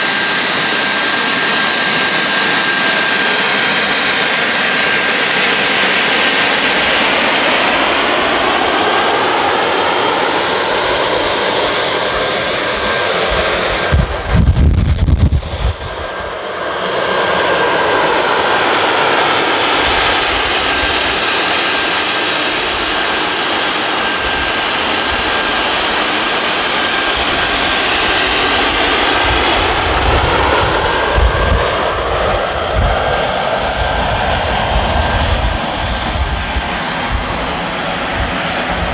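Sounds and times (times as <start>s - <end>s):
jet engine hiss and whine: 0.0s - 38.9s
loud low rumble: 13.2s - 16.3s.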